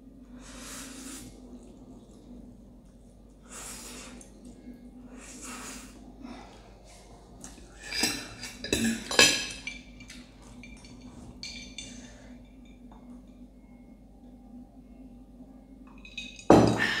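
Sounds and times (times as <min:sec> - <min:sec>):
forks clinking on glass plate: 0:07.9 - 0:12.6.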